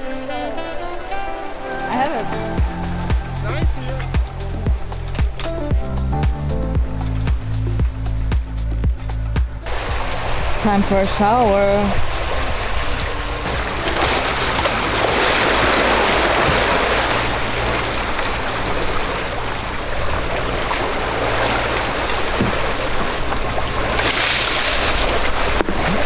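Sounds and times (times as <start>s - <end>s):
water rushing along boat hull: 0.0s - 26.0s
loud water splash: 9.7s - 26.0s.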